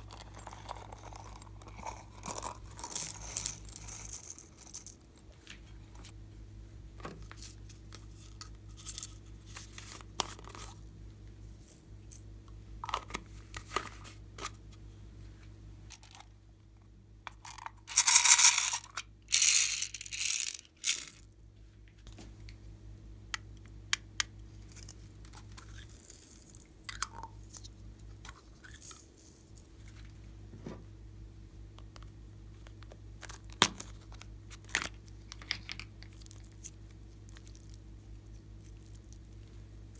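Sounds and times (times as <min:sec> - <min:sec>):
plastic pearls rattling: 0:00.0 - 0:05.1, 0:17.3 - 0:21.3
faint low hum: 0:00.0 - 0:39.9.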